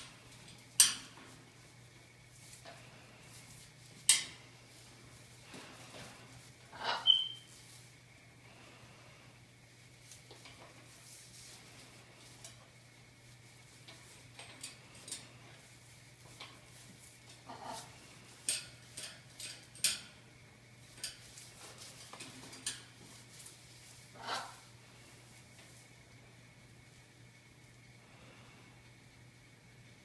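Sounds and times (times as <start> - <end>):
parrot beak and claws tapping metal: 0.0 - 1.4, 4.0 - 4.4, 17.3 - 20.2, 20.9 - 23.1.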